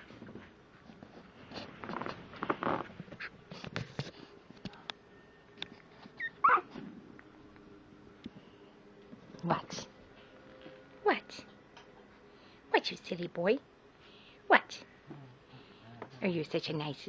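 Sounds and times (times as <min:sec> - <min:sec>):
puppy high cry: 0:06.2 - 0:06.8.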